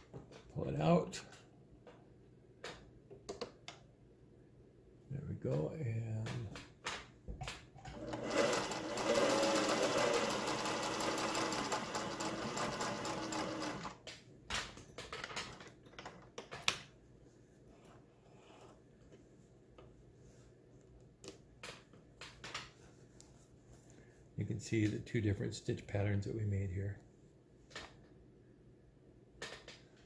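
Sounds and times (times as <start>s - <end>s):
sewing machine running: 7.9s - 14.0s.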